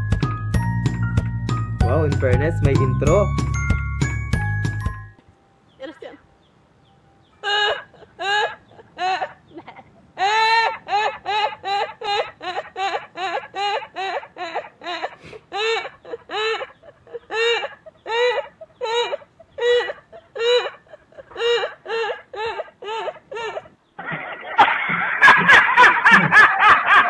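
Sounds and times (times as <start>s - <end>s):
woman's high-pitched squealing laugh: 7.4s - 27.0s.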